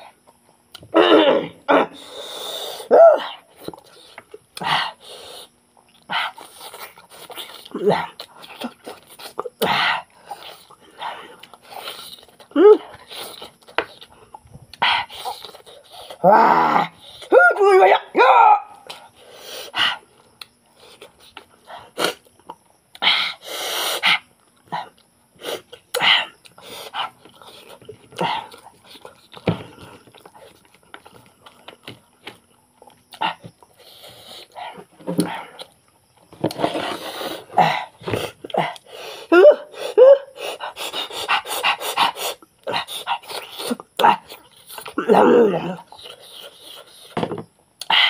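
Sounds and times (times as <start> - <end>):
man chewing wetly: 3.6 - 16.2, 23.8 - 39.0, 40.4 - 45.0.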